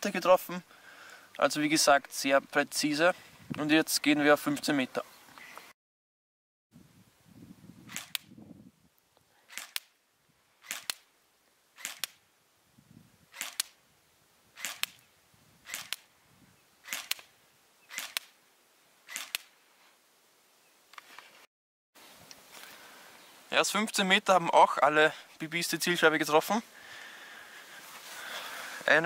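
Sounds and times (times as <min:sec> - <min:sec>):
airsoft rifle shots double click: 0:07.9 - 0:08.3, 0:10.6 - 0:11.0, 0:11.8 - 0:12.2, 0:13.3 - 0:13.8, 0:15.7 - 0:16.0, 0:16.8 - 0:17.3, 0:17.9 - 0:18.3, 0:19.1 - 0:19.5.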